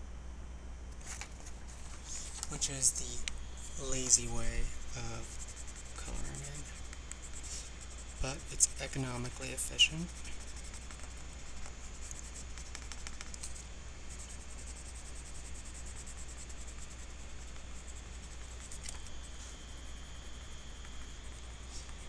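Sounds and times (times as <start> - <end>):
steady low hum: 0.0 - 22.0
colored pencil scratching on paper: 1.6 - 22.0.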